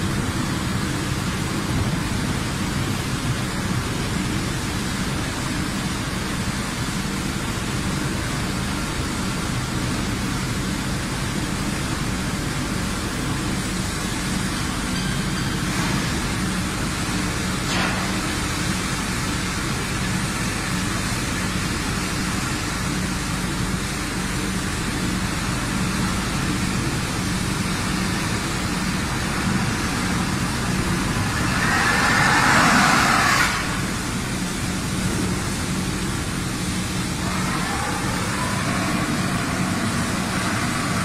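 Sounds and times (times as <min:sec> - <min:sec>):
constant machinery hum: 0:00.0 - 0:41.0
broad hiss of pouring steel: 0:10.6 - 0:41.0
loud hiss: 0:24.6 - 0:41.0.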